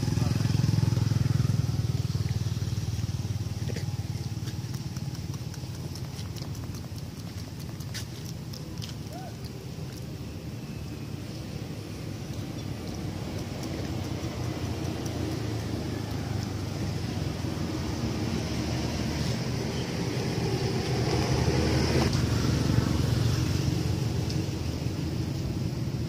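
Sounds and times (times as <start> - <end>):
vehicle engine running: 0.0 - 26.0
sharp tick: 4.4 - 9.0.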